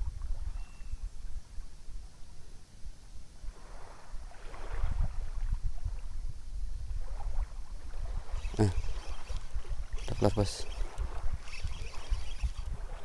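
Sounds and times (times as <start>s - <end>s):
wind buffeting microphone: 3.5s - 13.0s.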